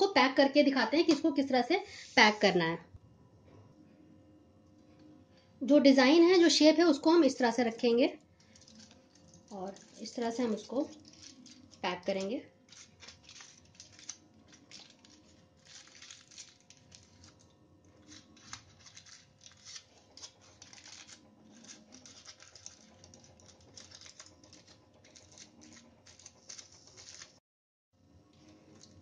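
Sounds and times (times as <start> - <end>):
foil crinkling: 8.4 - 27.4.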